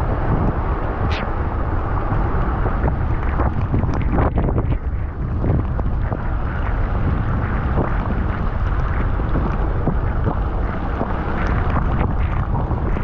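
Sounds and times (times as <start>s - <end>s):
wet tyres on the road: 0.0s - 13.0s
wind rushing over microphone: 0.0s - 13.0s
raindrops ticking: 3.1s - 13.0s.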